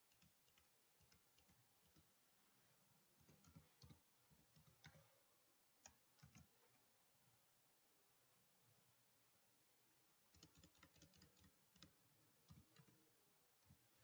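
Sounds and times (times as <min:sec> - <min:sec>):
keyboard keys clicking: 0:10.3 - 0:13.0.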